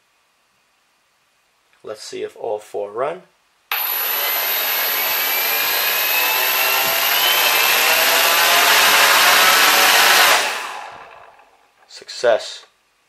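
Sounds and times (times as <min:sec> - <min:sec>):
drone motors whirring: 0:03.7 - 0:11.6.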